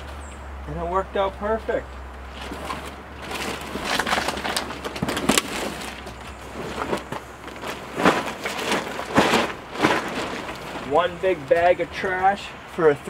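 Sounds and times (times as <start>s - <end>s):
plastic trash bag rustling: 2.2s - 11.5s.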